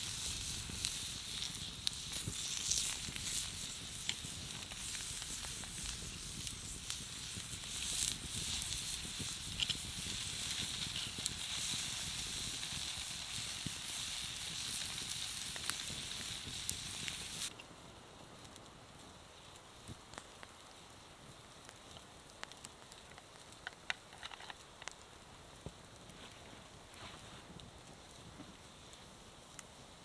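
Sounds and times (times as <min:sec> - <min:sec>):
meat sizzling on hot stone: 0:00.0 - 0:17.5
fire hissing: 0:00.0 - 0:30.0.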